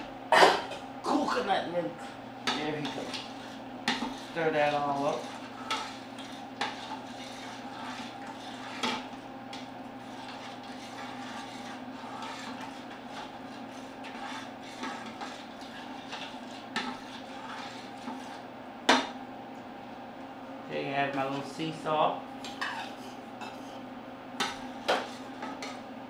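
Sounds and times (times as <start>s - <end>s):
steady hum: 0.0s - 26.0s
spoon stirring stew in a pot: 2.4s - 19.2s, 22.4s - 25.9s.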